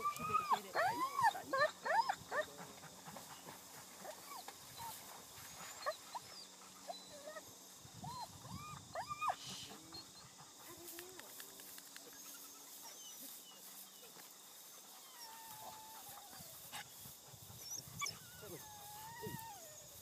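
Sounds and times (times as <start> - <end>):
dog whining and yelping: 0.0 - 2.4, 5.6 - 10.2, 17.6 - 20.0.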